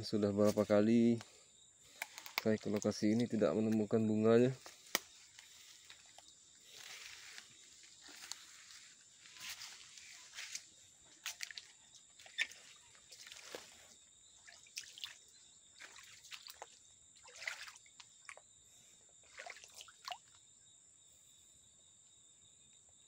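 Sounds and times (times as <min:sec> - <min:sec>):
small splashes in stream: 0:11.2 - 0:18.4, 0:19.2 - 0:20.4.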